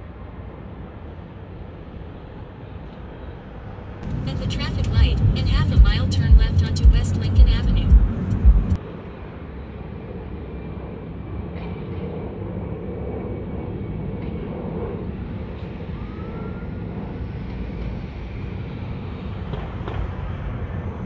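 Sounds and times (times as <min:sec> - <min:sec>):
car road and engine rumble: 0:03.9 - 0:08.8.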